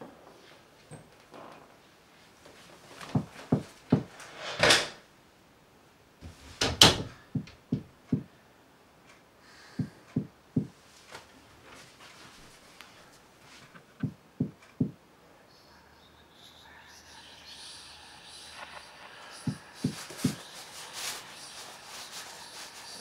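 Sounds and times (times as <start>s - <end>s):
footsteps on a floor: 2.4s - 4.2s, 19.4s - 21.7s
door swishing: 3.1s - 5.0s.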